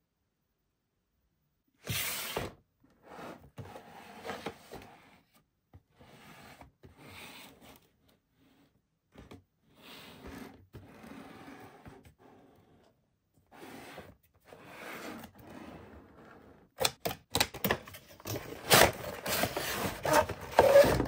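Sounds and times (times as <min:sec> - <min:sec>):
cardboard box rubbing and rustling: 0:18.6 - 0:21.0.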